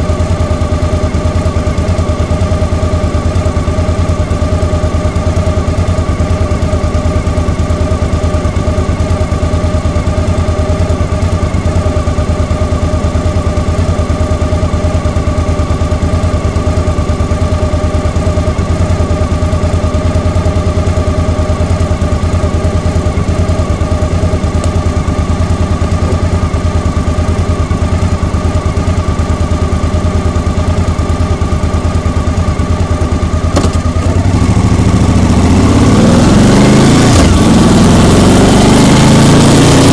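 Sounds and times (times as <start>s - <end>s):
vehicle engine idling: 0.0s - 39.2s.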